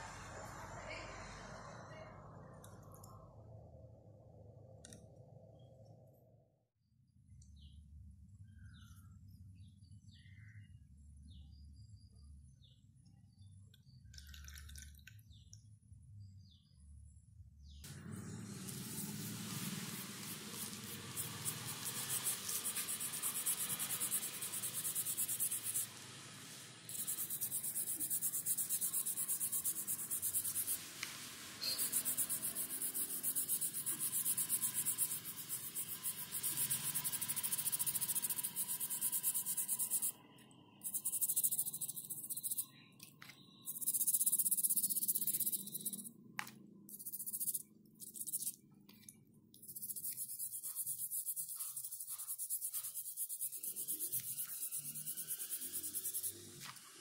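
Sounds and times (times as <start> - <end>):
toothbrush scrubbing bristles: 18.6 - 40.1, 40.8 - 42.7, 43.7 - 46.1, 46.9 - 56.8.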